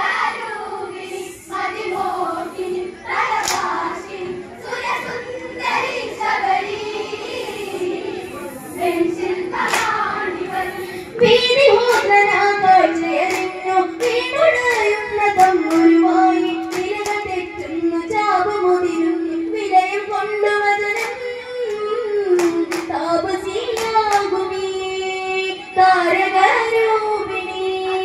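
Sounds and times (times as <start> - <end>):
women and girls singing in unison: 0.0 - 28.0
rhythmic hand claps: 1.5 - 7.4, 8.9 - 17.9, 20.8 - 24.6.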